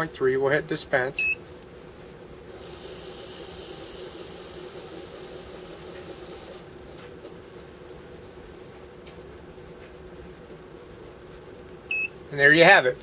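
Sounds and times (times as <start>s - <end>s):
powder streaming hiss: 2.5s - 7.0s.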